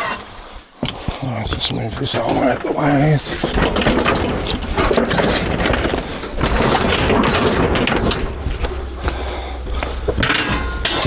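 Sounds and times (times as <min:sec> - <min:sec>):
steady low rumble: 0:01.9 - 0:11.0
knocks and thuds of scrap: 0:03.2 - 0:11.0.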